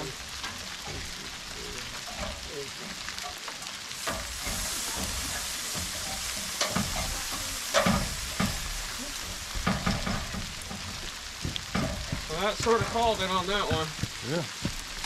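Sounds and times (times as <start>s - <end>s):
sleet hissing patter: 0.0s - 15.0s
sharp knocks: 7.8s - 15.0s.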